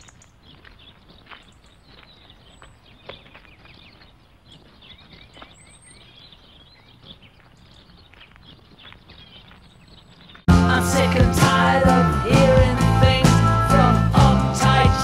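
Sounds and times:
faint birds chirping: 0.0s - 10.5s
outdoor background noise: 0.0s - 10.5s.

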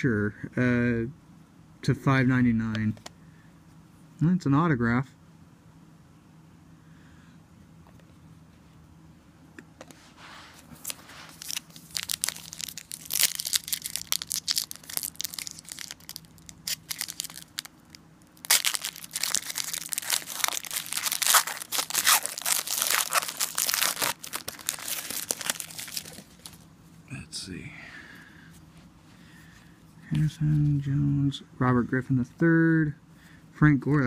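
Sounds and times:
foil wrapper tearing and crinkling: 10.8s - 26.6s.

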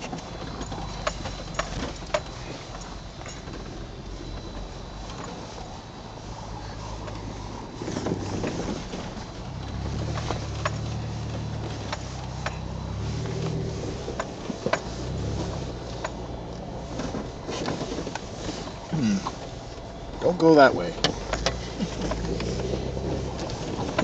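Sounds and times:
vehicle engine running: 0.0s - 24.0s
sharp clicks and knocks: 9.7s - 12.7s, 14.0s - 16.2s.

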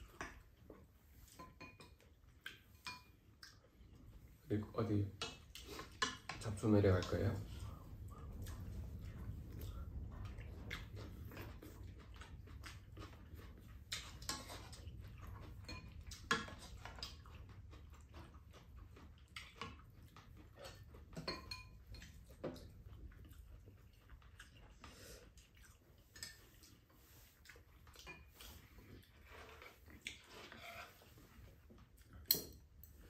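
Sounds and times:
chewing: 0.0s - 4.5s, 5.1s - 33.0s
utensils clinking against bowls: 21.1s - 22.1s.

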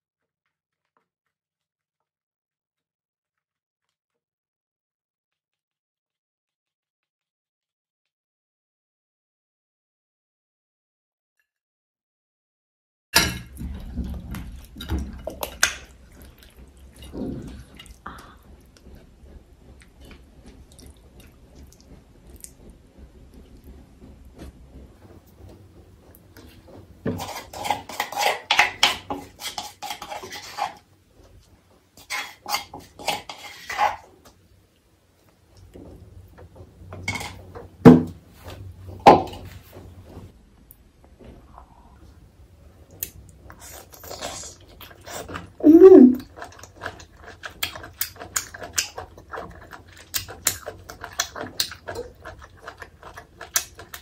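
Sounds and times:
wet squishy food scraping: 26.4s - 34.4s, 42.9s - 54.0s
plastic spoon scraping dishes: 27.0s - 30.9s, 32.0s - 34.1s.

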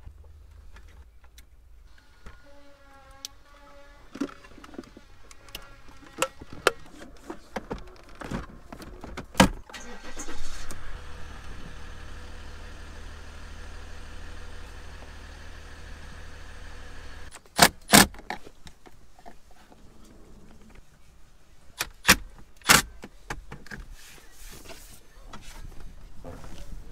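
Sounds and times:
truck engine cranking and running: 9.6s - 17.4s.

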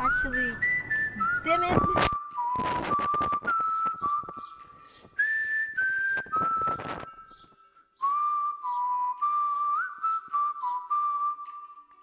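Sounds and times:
person whistling a tune: 0.0s - 12.0s
scratchy noise: 1.8s - 4.4s, 6.2s - 7.1s.

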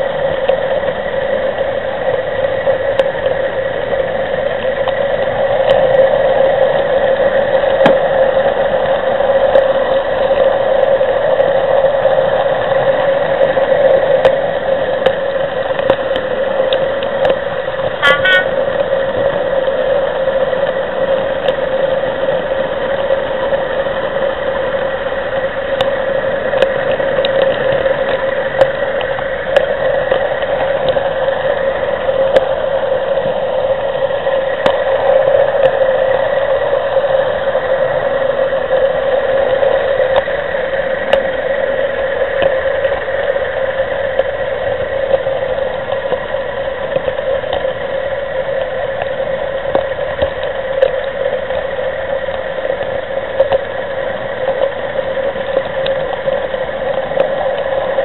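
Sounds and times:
model train running hum: 16.2s - 24.9s.

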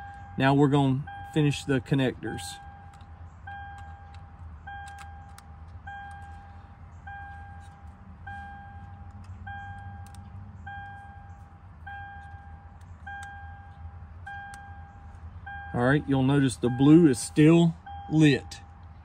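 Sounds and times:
warning chime beeping: 0.0s - 5.3s, 8.3s - 10.0s, 10.7s - 18.7s.

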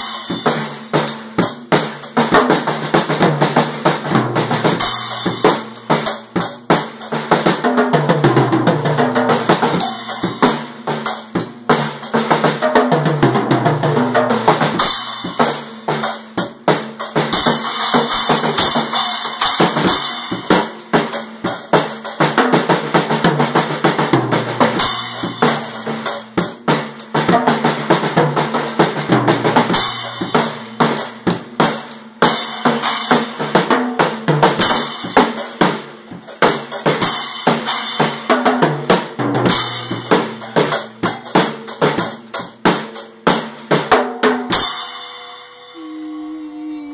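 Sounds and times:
drum kit played fast: 0.0s - 46.9s.

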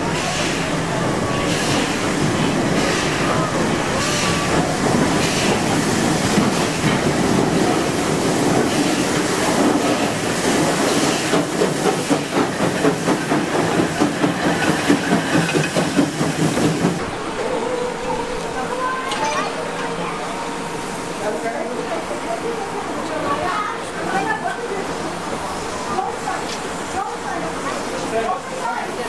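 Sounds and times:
steam locomotive passing: 0.0s - 29.0s.

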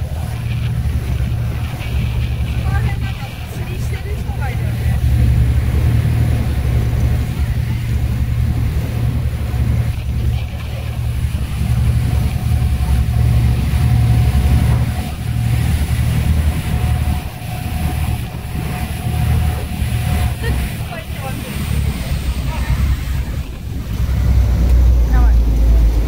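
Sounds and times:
boat engines rumbling: 0.0s - 26.0s
water rushing past hull: 0.0s - 26.0s
wind buffeting microphone: 0.0s - 26.0s.

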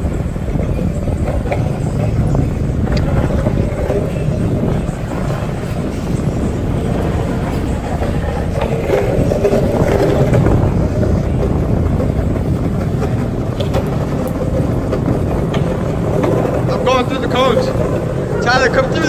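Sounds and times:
faint clicks from bumps: 0.0s - 19.0s
skate wheels rolling on concrete: 0.0s - 19.0s.

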